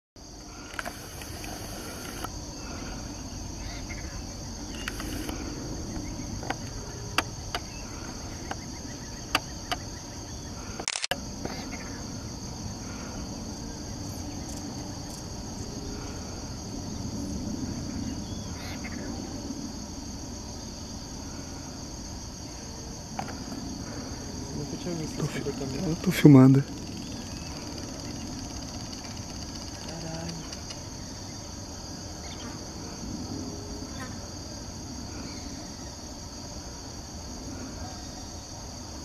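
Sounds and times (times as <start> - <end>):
high-pitched insect chorus: 0.2 - 39.0
sharp clicks: 10.8 - 11.2.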